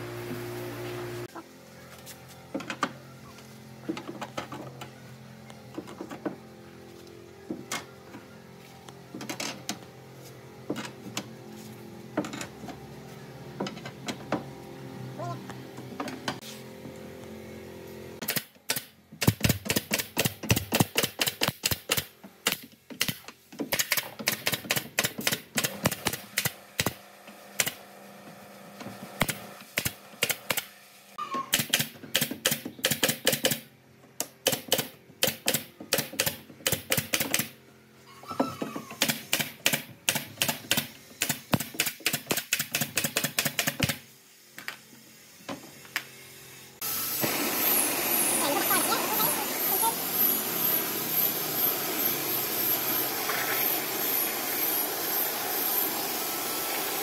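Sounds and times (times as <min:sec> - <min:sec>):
nail gun firing into wood: 0:18.2 - 0:27.0, 0:29.2 - 0:30.7, 0:31.5 - 0:33.7, 0:34.3 - 0:37.6, 0:39.0 - 0:44.0.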